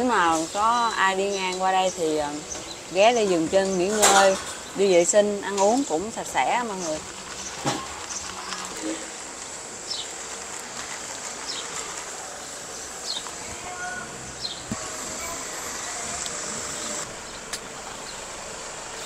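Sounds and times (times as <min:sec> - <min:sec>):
roadside eatery background noise: 0:00.0 - 0:19.0
thin high whine: 0:13.4 - 0:19.0.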